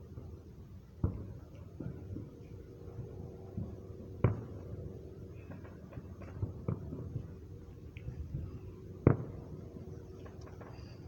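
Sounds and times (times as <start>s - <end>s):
low background hum: 0.0s - 11.0s
faint fireworks pops: 1.0s - 2.5s, 3.5s - 4.7s, 5.4s - 9.5s, 10.2s - 11.0s
fireworks bangs: 9.0s - 9.5s.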